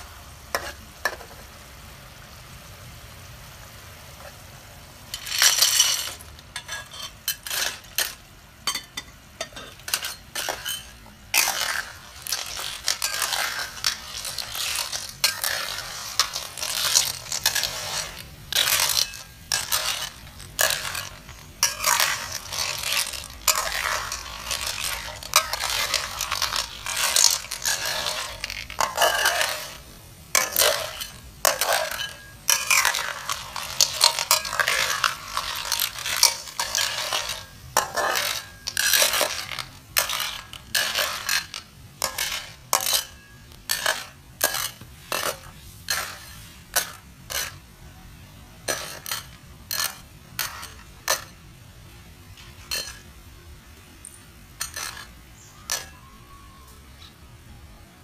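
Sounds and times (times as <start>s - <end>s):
scraping and clattering strokes: 5.1s - 47.6s, 48.6s - 51.4s, 52.3s - 53.2s, 54.0s - 56.0s.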